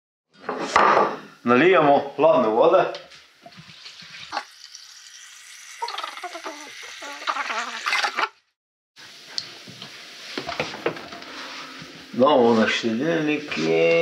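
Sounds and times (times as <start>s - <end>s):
water pouring into a pot: 3.4s - 8.3s.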